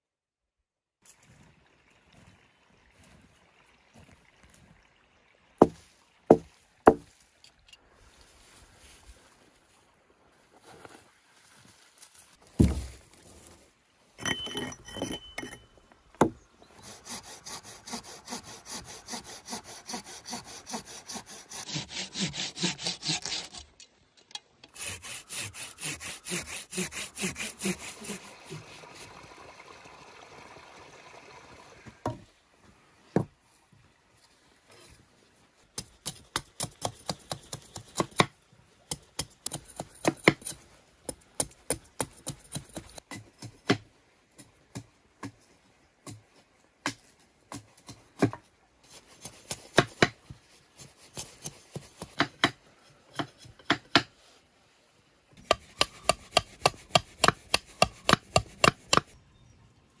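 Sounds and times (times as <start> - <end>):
knife chopping on wooden board: 55.4 - 59.1.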